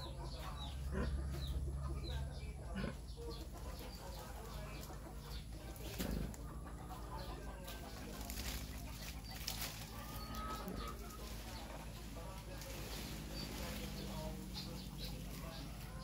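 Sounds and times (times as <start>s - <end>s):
dry leaves rustling and tearing: 5.7s - 6.4s, 7.6s - 16.0s.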